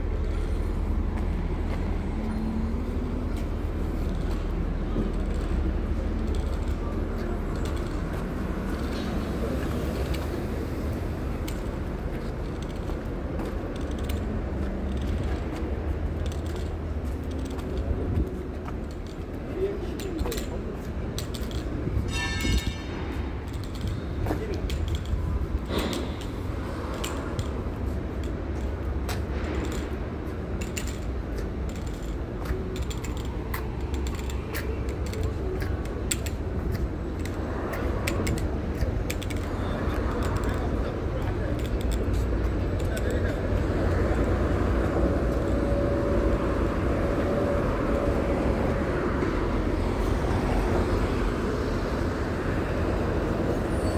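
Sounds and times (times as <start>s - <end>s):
traffic rumble: 0.0s - 53.9s
light clicks and ticks: 2.8s - 10.3s, 11.4s - 21.8s, 23.4s - 46.2s.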